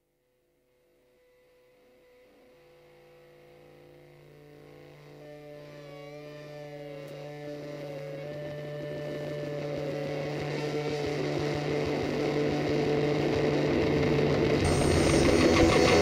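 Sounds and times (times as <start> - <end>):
high whine: 4.3 - 16.0
engine drone: 14.6 - 16.0.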